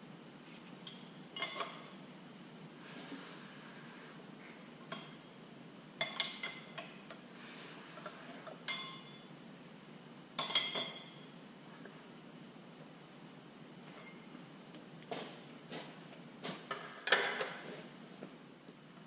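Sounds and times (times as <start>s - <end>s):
metal tools clinking: 0.8s - 2.0s, 6.0s - 6.8s, 8.6s - 9.3s, 10.4s - 11.2s.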